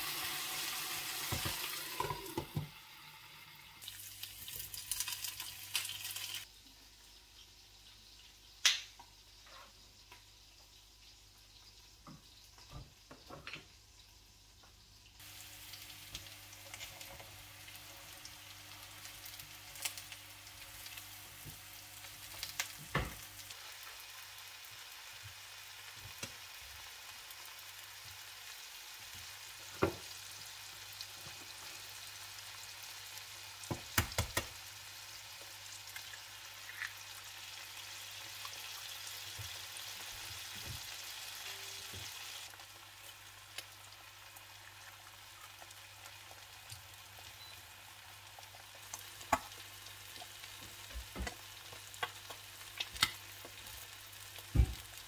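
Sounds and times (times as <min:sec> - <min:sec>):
vegetables sizzling in a frying pan: 0:00.0 - 0:55.0
eggs cracking: 0:35.9 - 0:37.2.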